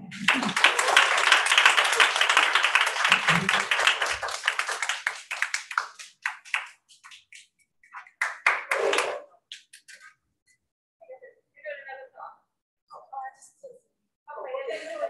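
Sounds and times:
audience applauding: 0:00.0 - 0:07.4, 0:08.0 - 0:09.3.

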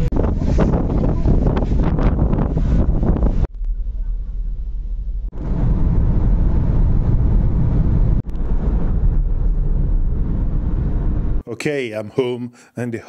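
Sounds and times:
low rumble on ferry deck: 0:00.0 - 0:11.4
road and wind noise: 0:00.0 - 0:11.4.

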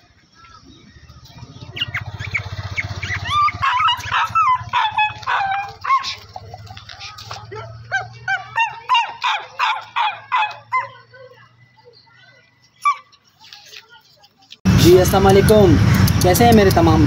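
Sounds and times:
small dog yapping: 0:02.7 - 0:11.0, 0:12.8 - 0:13.1.

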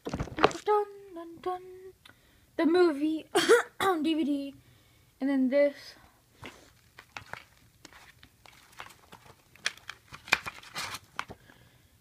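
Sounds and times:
plastic case clicks and rustles: 0:06.4 - 0:11.4.

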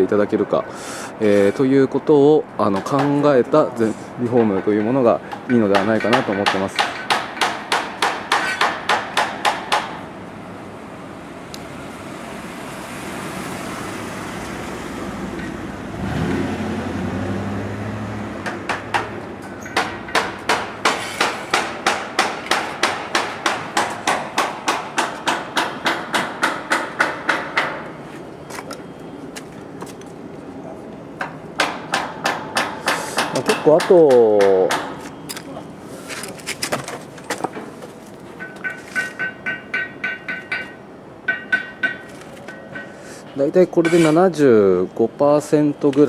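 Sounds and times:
hand hammer striking: 0:02.7 - 0:03.3, 0:04.3 - 0:10.0, 0:18.4 - 0:27.8, 0:31.2 - 0:35.1, 0:38.4 - 0:43.0
low engine hum: 0:10.5 - 0:20.2.

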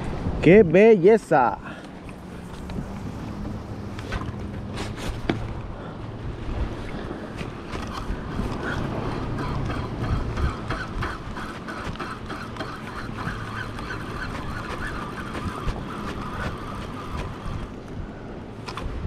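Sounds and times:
wind buffeting microphone: 0:01.4 - 0:19.0
waves lapping against plastic hull: 0:01.7 - 0:19.0.

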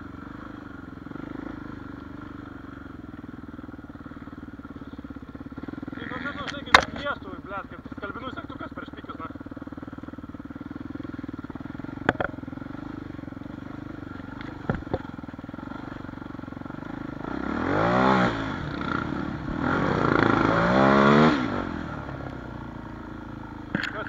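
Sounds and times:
dirt bike engine revving: 0:00.0 - 0:03.0, 0:03.8 - 0:24.0
sharp knocks: 0:12.0 - 0:12.3.

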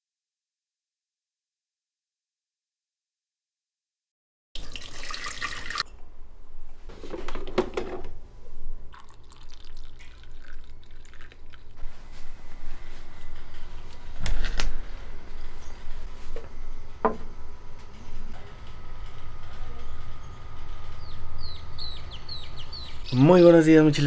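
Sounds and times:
liquid pouring and dripping: 0:04.6 - 0:05.8, 0:08.9 - 0:11.8.

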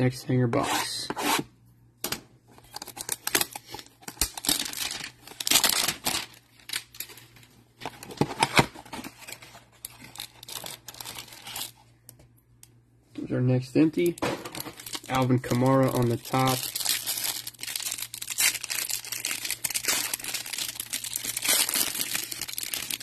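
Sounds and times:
plastic wrap tearing and crinkling: 0:02.7 - 0:07.2, 0:08.1 - 0:11.8, 0:14.4 - 0:23.0.

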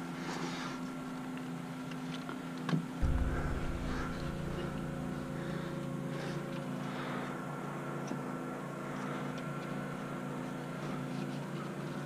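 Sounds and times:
steady mechanical hum: 0:00.0 - 0:12.0.

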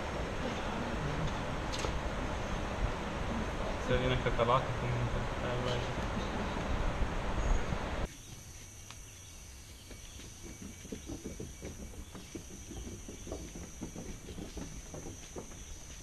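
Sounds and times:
footsteps on wooden boardwalk: 0:09.7 - 0:16.0.

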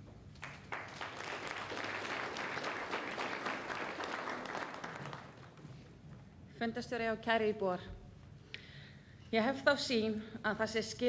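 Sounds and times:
audience applauding: 0:00.4 - 0:05.6.

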